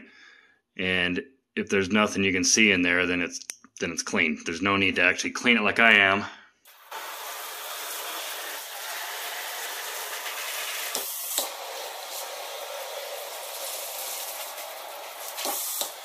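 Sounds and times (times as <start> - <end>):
water spraying on plastic: 6.7 - 16.0.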